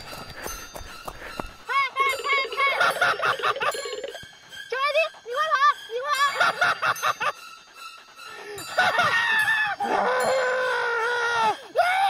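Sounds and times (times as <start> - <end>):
person shrieking and screaming: 8.8 - 12.0.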